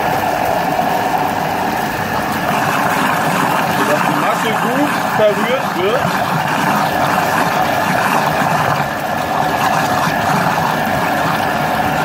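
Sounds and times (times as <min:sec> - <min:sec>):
wet mixture churning: 0:01.1 - 0:12.0
food processor motor running: 0:02.1 - 0:12.0.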